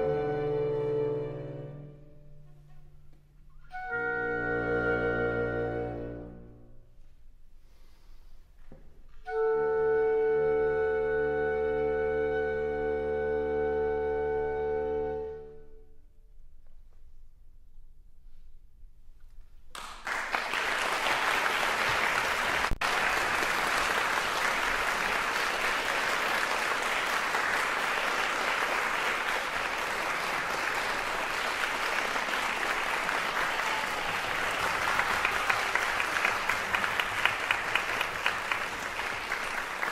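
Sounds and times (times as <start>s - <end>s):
audience applauding: 19.7s - 39.9s.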